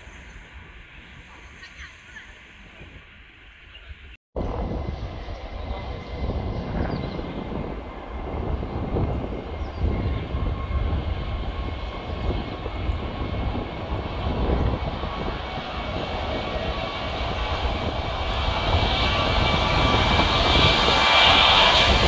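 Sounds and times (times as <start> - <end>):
jet engines rumbling with whine: 0.0 - 22.0.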